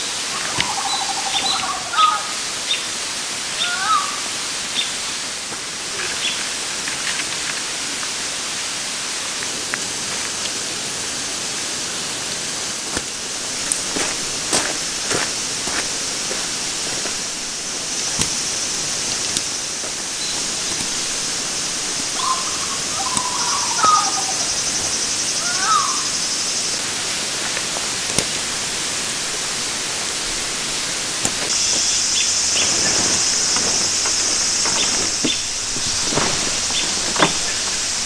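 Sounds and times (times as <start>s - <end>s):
steady hiss: 0.0s - 38.0s
high insect buzz: 13.0s - 27.2s, 28.4s - 38.0s.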